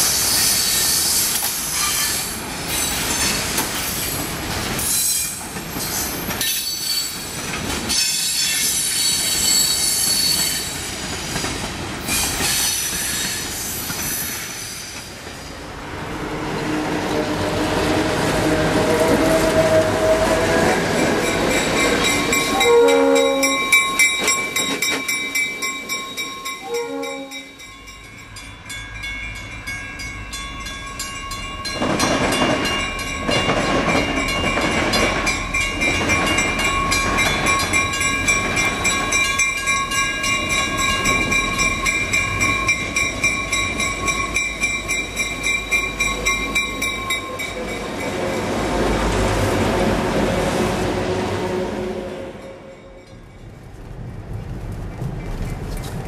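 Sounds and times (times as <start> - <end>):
diesel engines rumbling: 15.1 - 23.1
locomotive horn blasts: 16.0 - 21.2, 22.2 - 23.9, 26.6 - 27.6, 47.3 - 53.1
warning bell ringing: 21.2 - 48.3.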